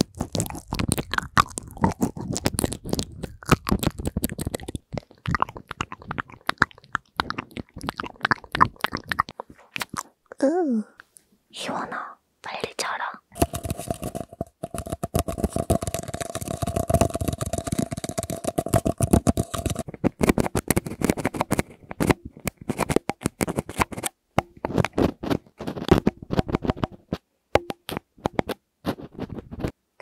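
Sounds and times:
plastic syringe tapping microphone: 0.0s - 10.2s, 13.3s - 29.8s
fingernails tapping on paper cup: 13.4s - 25.0s, 27.6s - 28.6s.

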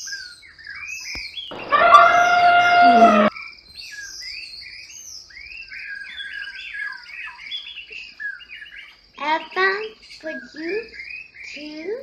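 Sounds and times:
birds chirping: 0.0s - 12.0s
elephant trumpeting: 1.5s - 3.3s.

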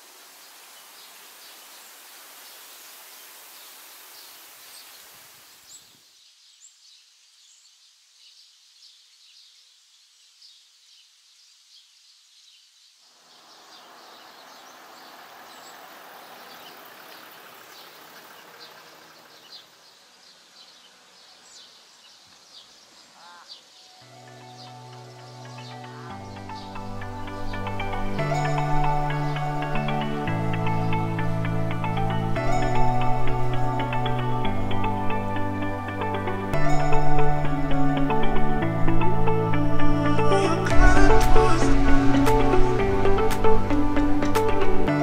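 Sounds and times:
faint steady hiss: 0.0s - 45.0s
small birds chirping: 0.0s - 45.0s
music: 24.0s - 45.0s.

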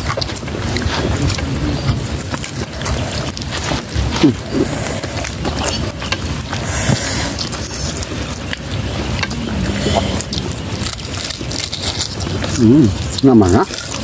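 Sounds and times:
low rumble: 0.0s - 13.2s
chewing: 0.0s - 14.0s
fried chicken being torn: 10.2s - 14.0s.

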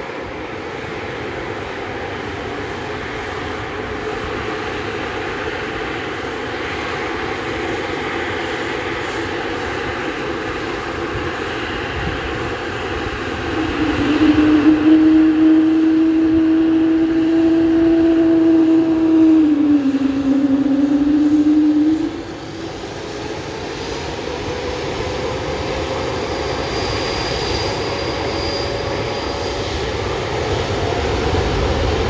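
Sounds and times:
jet engines rushing: 0.0s - 32.0s
steady hum: 12.0s - 26.2s.

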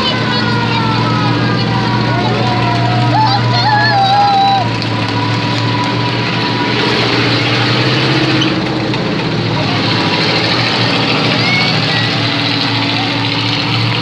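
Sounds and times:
armoured vehicle engine passing: 0.0s - 14.0s.

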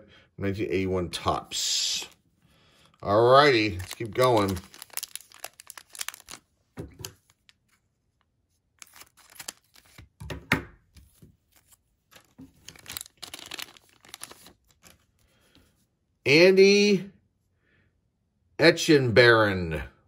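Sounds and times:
plastic wrapper tearing and crinkling: 3.3s - 7.8s, 8.8s - 10.2s, 11.6s - 15.1s.

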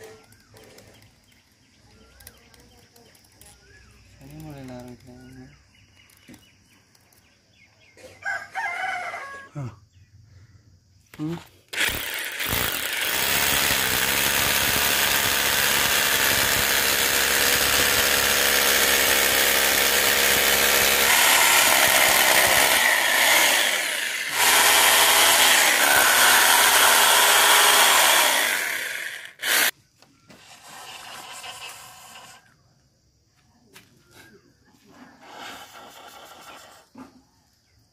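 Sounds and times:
hammer drill boring into masonry: 11.7s - 32.5s.

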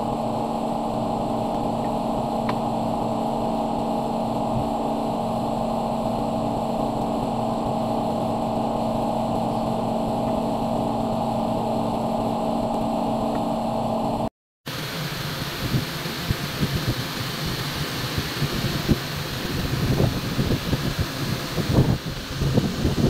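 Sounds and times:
steady machine hum: 0.0s - 23.0s.

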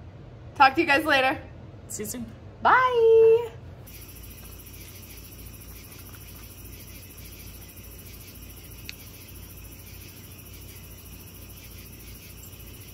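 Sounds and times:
crickets chirring: 3.9s - 12.9s.

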